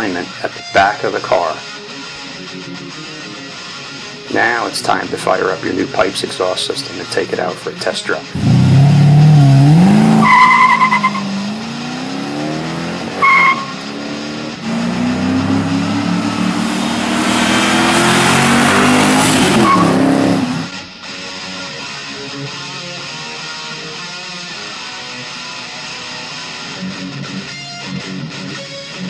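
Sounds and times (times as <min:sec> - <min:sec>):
guitar music: 0:00.0 - 0:29.0
car engine accelerating: 0:08.3 - 0:20.8
tire squeals: 0:09.2 - 0:11.8, 0:13.0 - 0:13.9, 0:16.6 - 0:20.7.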